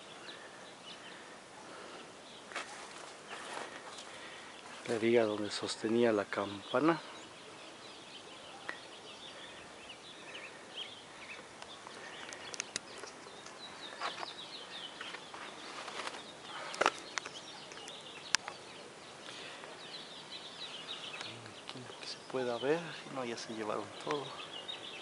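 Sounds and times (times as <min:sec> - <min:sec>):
small birds chirping: 0:00.0 - 0:25.0
sharp clicks: 0:11.6 - 0:13.6.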